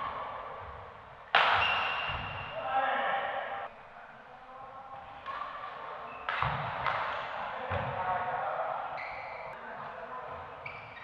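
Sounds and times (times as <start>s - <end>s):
racket hitting shuttlecock: 1.3s - 2.6s, 6.3s - 7.9s
shoes squeaking on court: 1.5s - 2.6s, 9.0s - 9.6s, 10.3s - 11.0s
players' voices: 2.5s - 10.8s.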